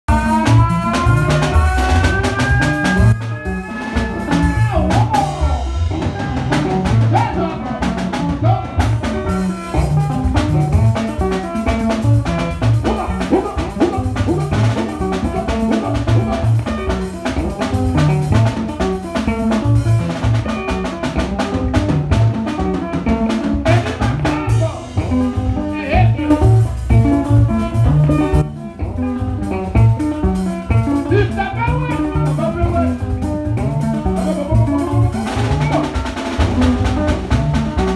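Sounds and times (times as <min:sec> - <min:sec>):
drum kit groove: 0:00.0 - 0:37.9
held pitched instrument note: 0:00.1 - 0:19.6.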